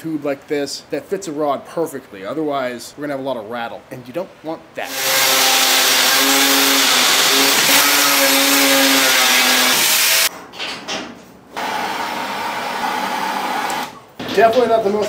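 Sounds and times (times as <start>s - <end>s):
angle grinder cutting steel: 4.9s - 10.3s.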